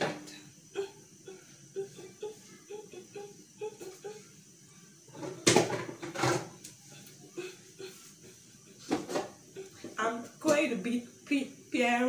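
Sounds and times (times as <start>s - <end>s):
kitchenware knocks and clatters: 5.1s - 6.6s, 8.9s - 9.4s.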